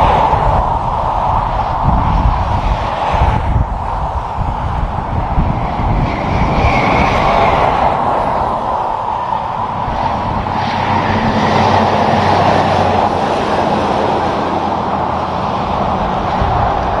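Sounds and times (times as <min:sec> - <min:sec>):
truck passing at speed: 0:00.0 - 0:17.0.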